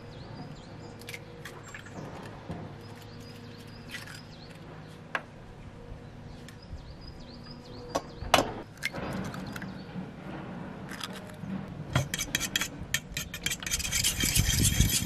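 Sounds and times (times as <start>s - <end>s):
faint birdsong: 0.0s - 8.7s.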